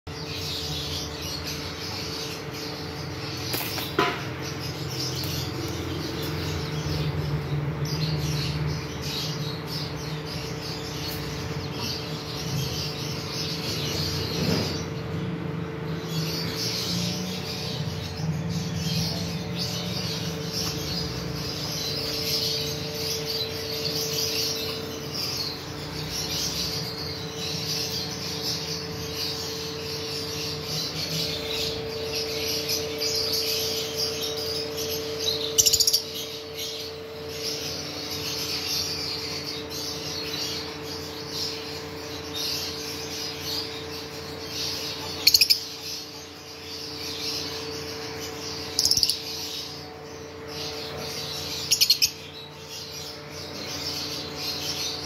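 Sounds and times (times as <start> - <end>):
lovebirds chattering and chirping: 0.1 - 55.0
steady low hum: 0.1 - 55.0
loud shrill bird calls: 16.0 - 55.0.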